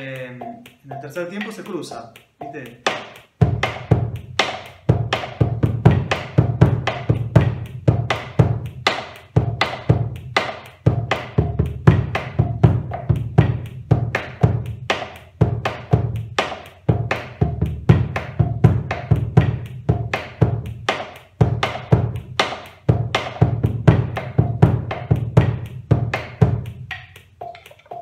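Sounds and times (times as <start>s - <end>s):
sticks clicking on wooden rim: 0.0s - 5.4s, 27.0s - 28.0s.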